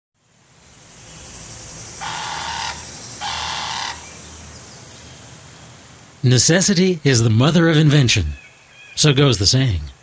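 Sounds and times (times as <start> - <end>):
buzzing insect calls: 0.2 - 5.8.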